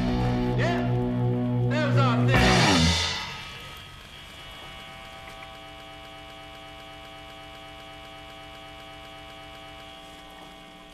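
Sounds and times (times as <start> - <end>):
electronic drone music: 0.0 - 5.1.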